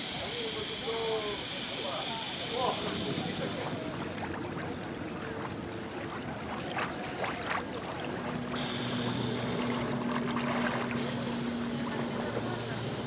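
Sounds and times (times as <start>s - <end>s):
steady low hum: 0.0s - 13.0s
water splashing and lapping: 2.9s - 13.0s.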